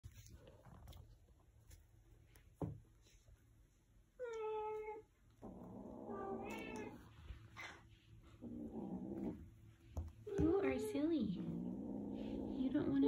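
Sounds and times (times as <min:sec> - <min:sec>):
kitten growling: 0:04.5 - 0:13.0.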